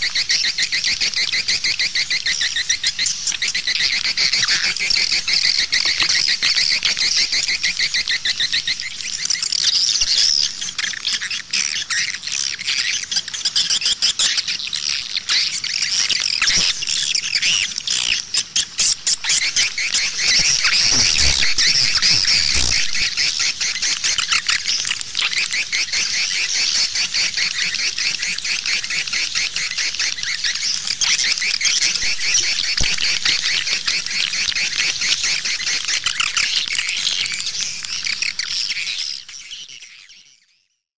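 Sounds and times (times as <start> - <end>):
swiftlet chittering chorus: 18.8 - 39.3.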